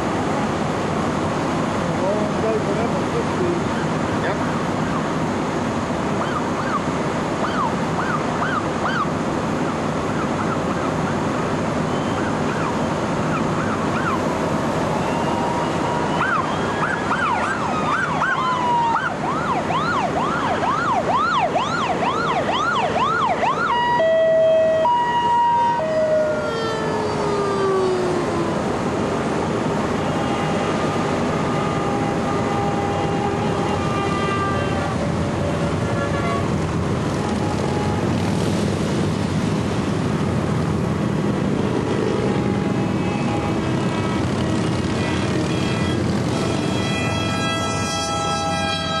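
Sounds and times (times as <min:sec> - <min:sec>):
emergency vehicle sirens: 0:00.0 - 0:49.0
motorcycles and traffic rumble: 0:00.0 - 0:49.0
loud horn blast: 0:29.9 - 0:38.3, 0:41.7 - 0:49.0.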